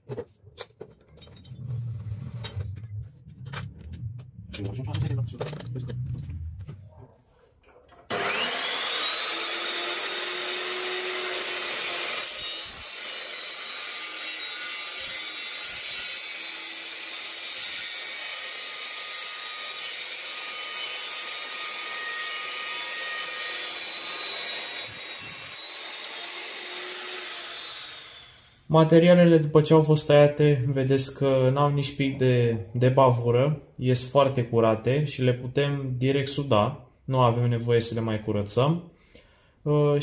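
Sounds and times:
metal saw motor whine: 8.1s - 13.2s
saw blade cutting steel tube: 8.1s - 28.4s.

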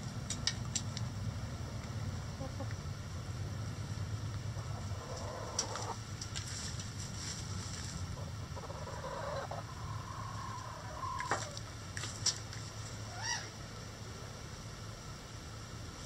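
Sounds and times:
chickens calling: 4.5s - 6.0s, 8.1s - 11.7s.

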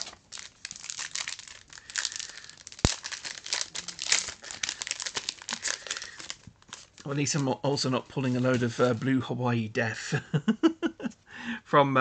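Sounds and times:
foil wrapper crinkling: 0.0s - 9.1s.

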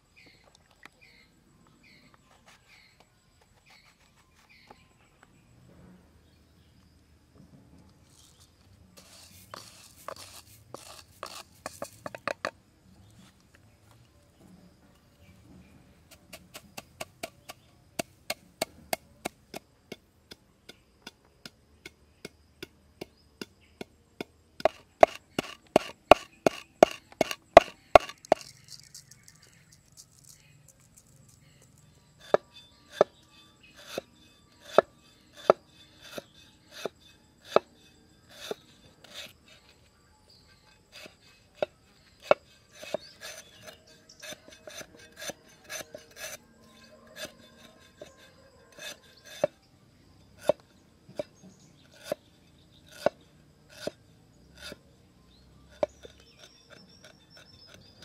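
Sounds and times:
cleaver chopping on wooden board: 23.0s - 28.5s
pestle pounding in mortar: 23.8s - 29.0s.

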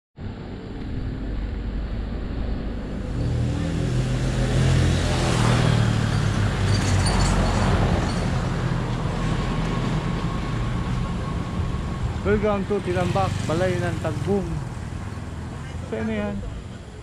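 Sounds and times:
road and wind noise: 0.2s - 17.0s
vehicle engine running: 10.2s - 17.0s.

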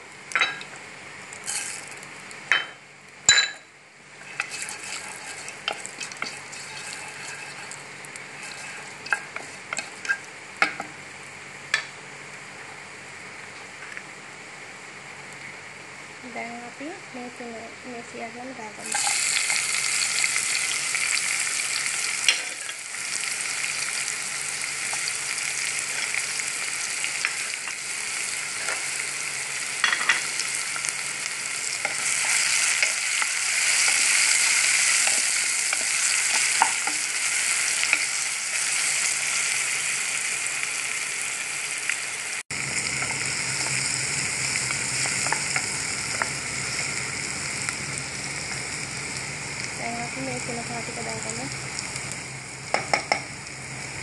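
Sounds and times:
food sizzling in hot oil: 0.0s - 12.4s, 16.2s - 54.0s
spoon knocking against pan: 52.7s - 53.3s.

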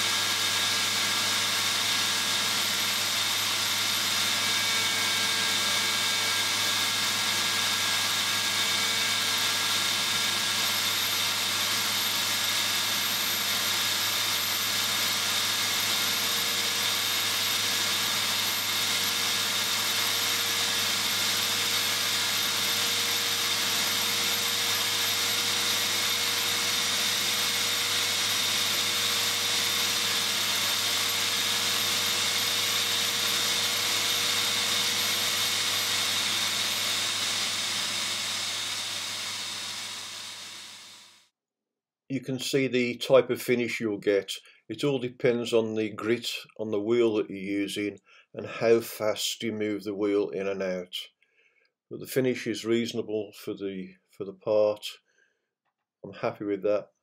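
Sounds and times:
grinder whining: 0.0s - 41.2s
grinding wheel hissing on steel: 0.0s - 41.2s.

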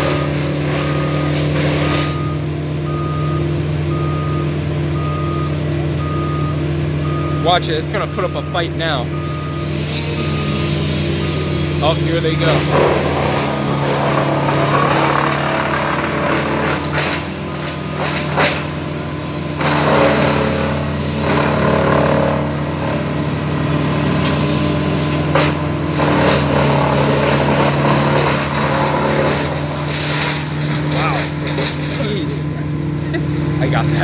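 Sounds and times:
machine engine running: 3.9s - 34.0s.

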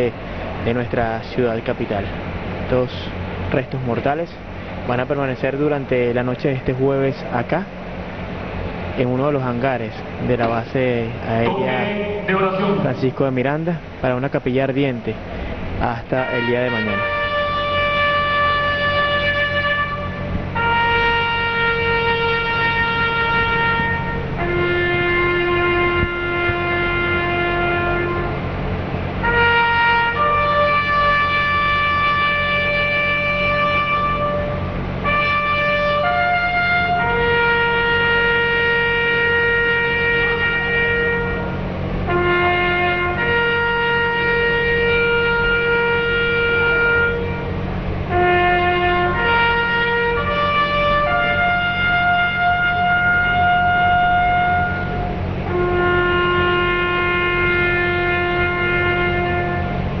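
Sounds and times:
steady low rumble: 0.0s - 29.4s, 30.0s - 60.0s
brass horn playing long notes: 11.4s - 13.2s, 16.2s - 60.0s
bugle call: 11.4s - 13.2s, 16.2s - 28.5s, 29.2s - 60.0s.

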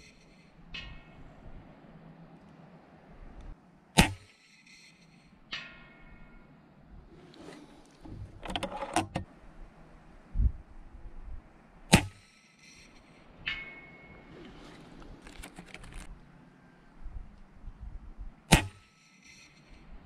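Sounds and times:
faint ring of steel plate: 0.0s - 1.6s, 4.0s - 8.2s, 11.9s - 14.8s
air rifle shots: 3.9s - 4.8s, 11.9s - 12.3s, 18.5s - 19.8s
rifle action clicks and rattles: 8.3s - 9.3s, 15.0s - 16.2s.

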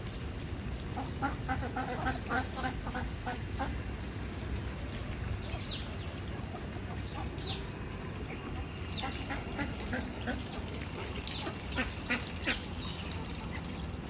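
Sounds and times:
duck quacking: 9.0s - 10.5s.

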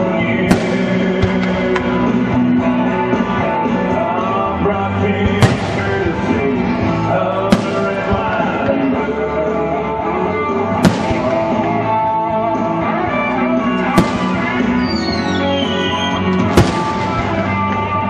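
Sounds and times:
rock music with guitar: 0.0s - 18.0s
firework shells bursting: 7.5s - 8.5s, 10.8s - 11.8s, 13.8s - 17.5s
falling whistle: 13.6s - 16.5s.

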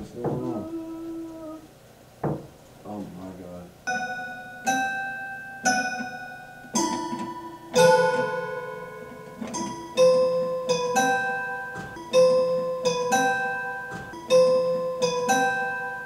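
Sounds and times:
eerie upright piano notes: 6.7s - 16.0s.

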